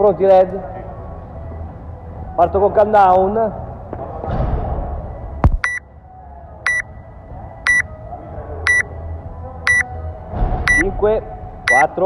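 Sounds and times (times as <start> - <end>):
short high-pitched timer beeps: 5.6 - 5.8, 9.7 - 9.9, 11.7 - 11.9.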